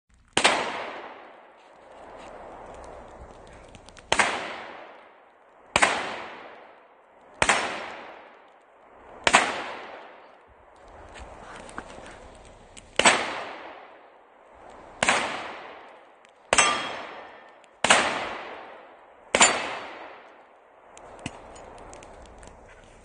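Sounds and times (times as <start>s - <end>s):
pistol shots with echo: 0.4s - 1.4s, 4.1s - 4.9s, 5.8s - 6.6s, 7.4s - 8.3s, 13.0s - 13.9s, 15.0s - 15.9s, 16.5s - 20.3s.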